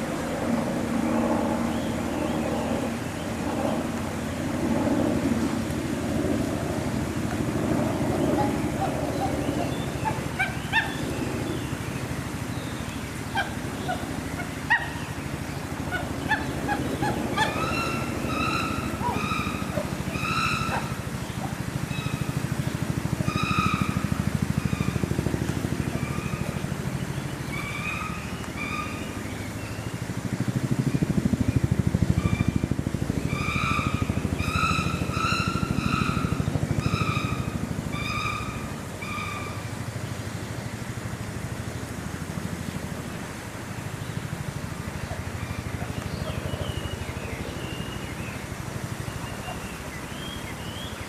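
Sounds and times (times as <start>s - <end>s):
honking animal calls: 15.9s - 22.1s.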